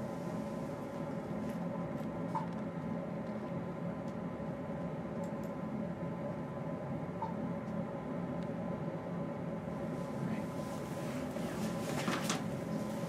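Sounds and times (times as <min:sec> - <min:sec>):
background hiss and hum: 0:00.0 - 0:13.0
rustling handling noise: 0:10.7 - 0:13.0.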